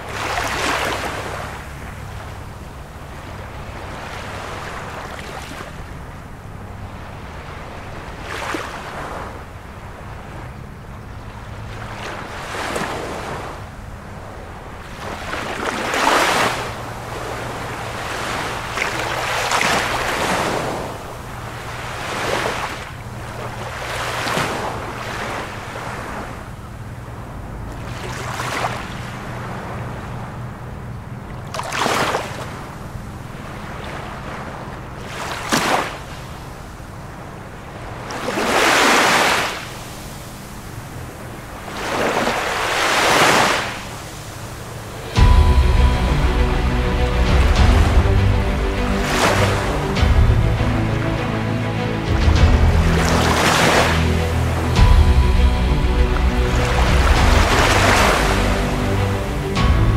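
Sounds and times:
small waves washing on shore: 0.0s - 59.9s.

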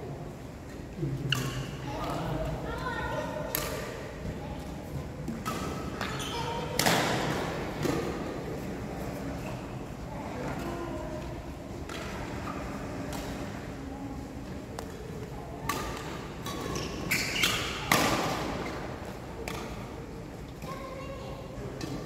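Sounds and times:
shoe squeaks: 6.1s - 6.7s, 16.6s - 17.9s.

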